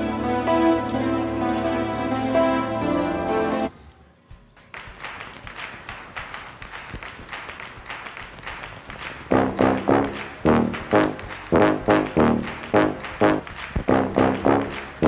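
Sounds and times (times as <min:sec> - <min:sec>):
short brass notes: 0:09.3 - 0:15.0.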